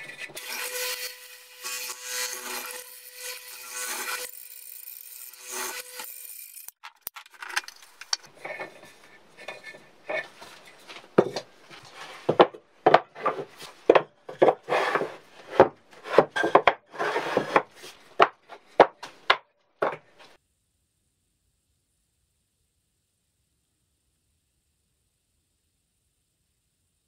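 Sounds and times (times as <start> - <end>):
wood scraping on plywood: 8.4 - 20.4
wood knocking on wood: 12.3 - 14.6.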